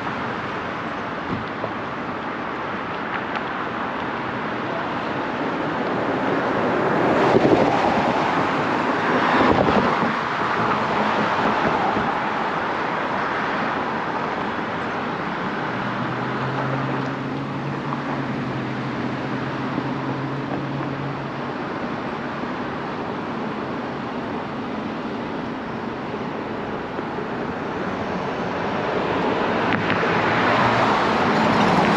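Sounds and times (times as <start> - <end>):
traffic wash: 0.0 - 31.9
vehicle passing: 15.1 - 22.8, 26.0 - 31.9.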